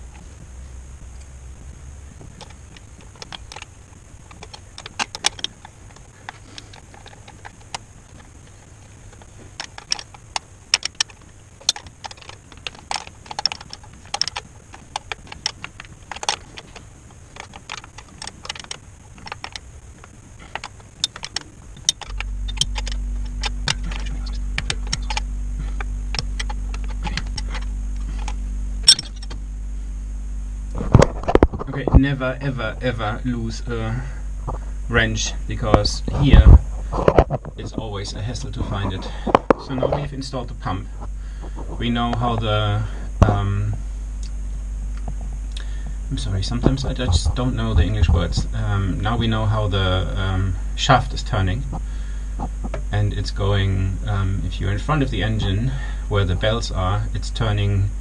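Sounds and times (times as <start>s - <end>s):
steady low hum: 0.0s - 58.0s
metal tool clinks and clicks: 28.2s - 29.4s.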